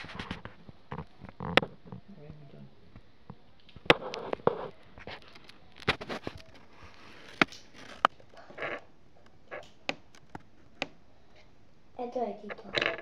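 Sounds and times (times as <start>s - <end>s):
plastic pieces clicking together: 3.6s - 10.9s.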